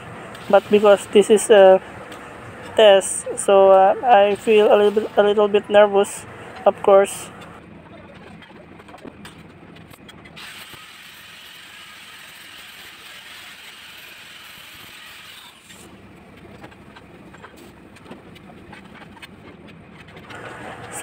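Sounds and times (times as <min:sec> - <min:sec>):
welding arc crackling hiss: 0:10.4 - 0:15.9.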